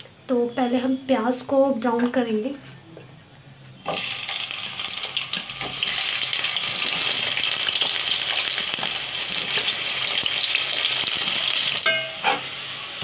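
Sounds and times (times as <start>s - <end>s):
onions sizzling in hot oil: 3.8s - 13.0s.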